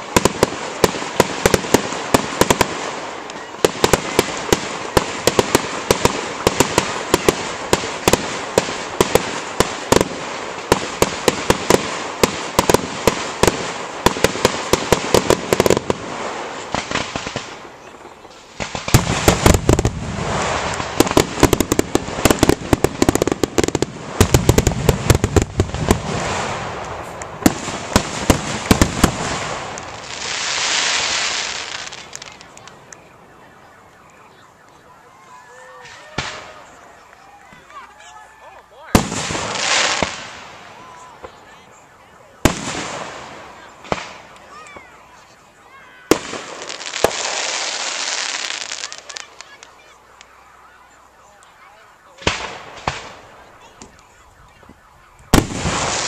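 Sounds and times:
deep firework booms: 0:00.0 - 0:17.7, 0:18.5 - 0:32.2, 0:38.9 - 0:40.6, 0:42.4 - 0:44.3, 0:54.6 - 0:56.0
fireworks crackling: 0:00.0 - 0:56.0.

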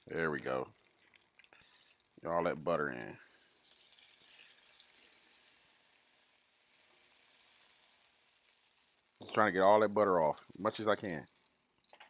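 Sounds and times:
butter sizzling in a skillet: 0:00.0 - 0:12.0.

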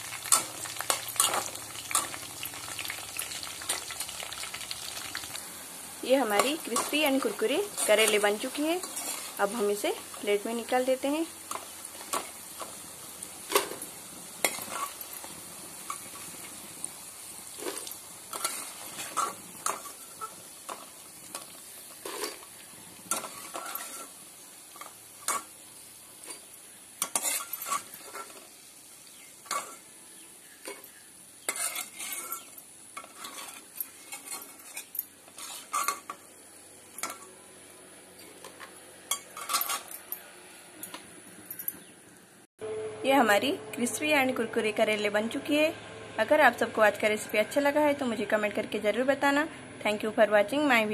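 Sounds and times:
slices sizzling in hot oil: 0:00.0 - 0:39.9
metal skimmer scraping pan: 0:17.5 - 0:24.2, 0:30.6 - 0:36.2.

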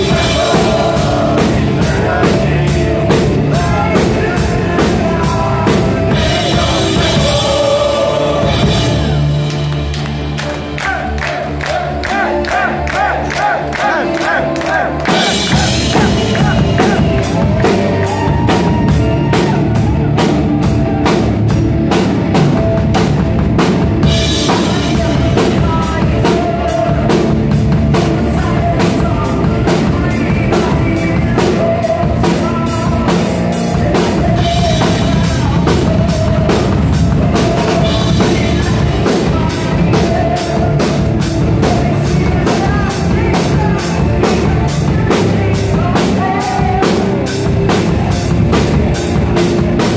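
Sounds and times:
man singing: 0:00.0 - 0:09.3, 0:10.8 - 0:21.2, 0:24.0 - 0:49.9
rapid drumming: 0:00.0 - 0:49.9
distorted guitar: 0:13.6 - 0:49.9.

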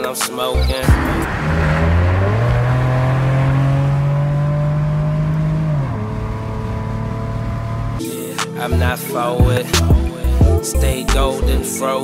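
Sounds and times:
road noise: 0:00.0 - 0:08.0
car engine accelerating: 0:00.6 - 0:08.0.

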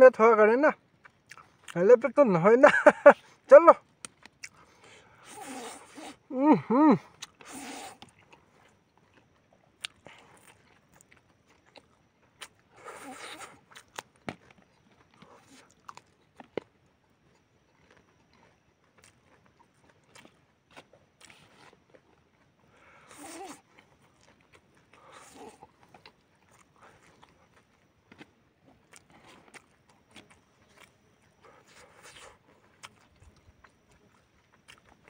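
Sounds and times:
chewing: 0:00.9 - 0:06.3, 0:07.0 - 0:35.0
noodles slurped: 0:05.2 - 0:06.2, 0:07.2 - 0:08.3.

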